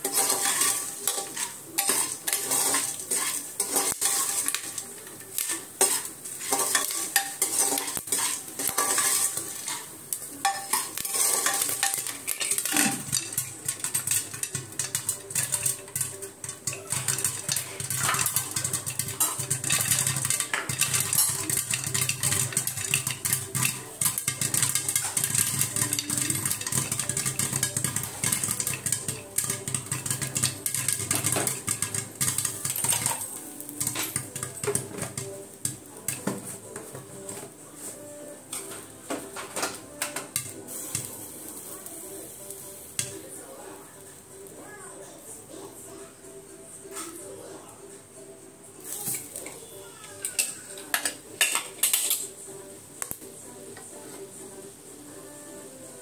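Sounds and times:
ladle scraping metal pot: 0.0 - 35.3
popcorn popping inside cooker: 0.0 - 37.6, 38.5 - 43.4, 48.8 - 52.4, 53.0 - 53.9.

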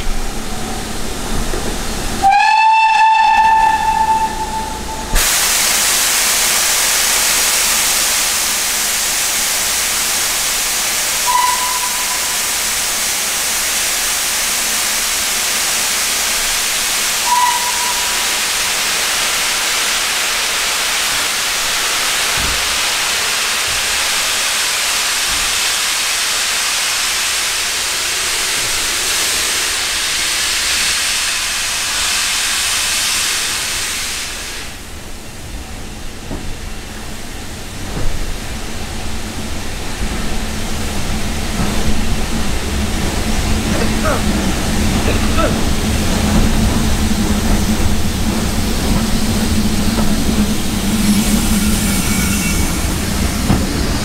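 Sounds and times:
steam locomotive hissing steam: 0.0 - 54.0
steam whistle toots: 2.2 - 5.3, 11.2 - 12.7, 17.2 - 18.8, 50.9 - 52.9.

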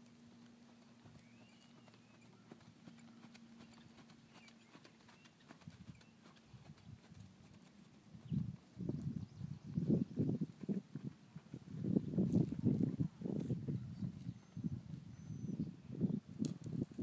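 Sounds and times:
horse hoofbeats on sand: 0.4 - 9.1, 10.4 - 13.6.

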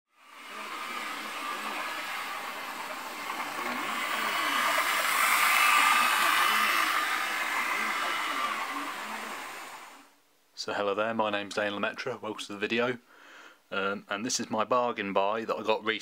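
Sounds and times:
model train motor whine: 0.1 - 10.2
model train wheel rumble: 0.2 - 10.1.

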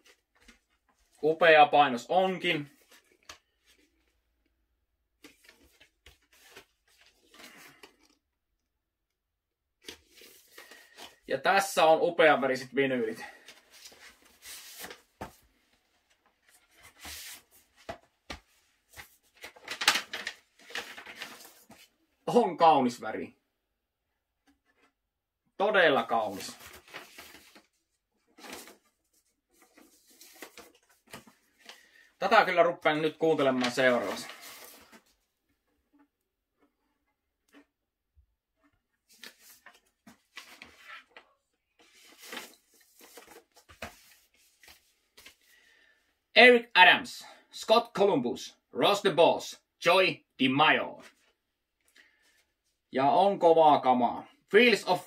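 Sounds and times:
paper and cardboard rustling: 5.2 - 8.2, 9.8 - 11.3, 13.2 - 21.9, 26.0 - 32.0, 33.0 - 35.2, 39.0 - 45.5.

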